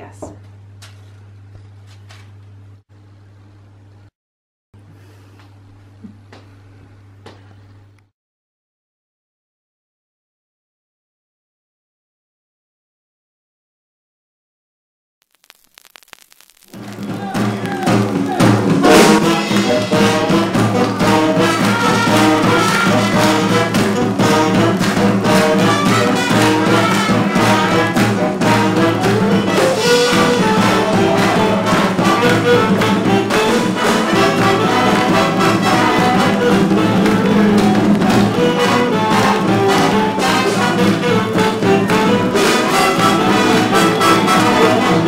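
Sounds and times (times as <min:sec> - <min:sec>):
orchestral music led by brass: 0:18.2 - 0:45.0.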